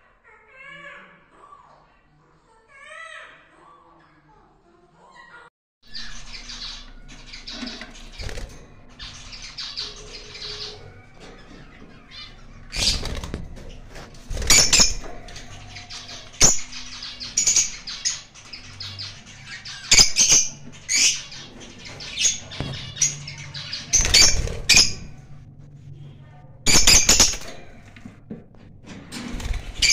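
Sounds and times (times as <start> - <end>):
parrots screeching: 5.1 - 8.3, 9.0 - 13.3, 14.4 - 25.2
parrots chirping: 5.1 - 25.4, 26.7 - 27.6.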